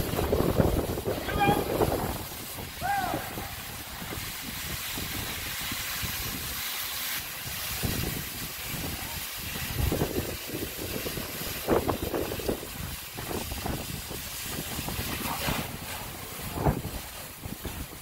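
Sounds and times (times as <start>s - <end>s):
low rumbles: 0.0s - 4.6s
fire hose spraying water: 0.0s - 18.0s.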